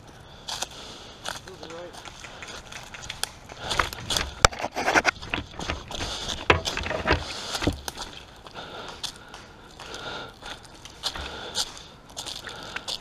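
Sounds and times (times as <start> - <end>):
footsteps crunching through dry twigs: 2.8 - 13.0.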